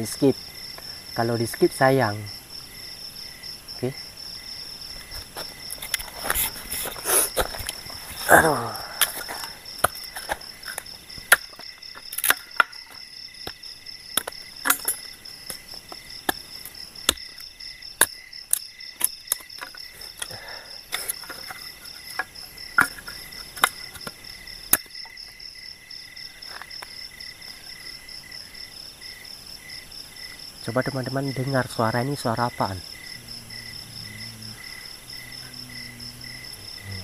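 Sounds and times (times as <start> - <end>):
crickets chirping: 0.0 - 37.0.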